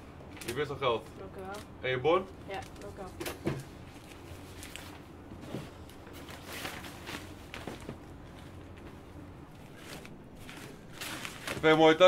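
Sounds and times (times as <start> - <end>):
steady low hum: 0.0 - 12.0
shopping bags rustling: 3.8 - 12.0.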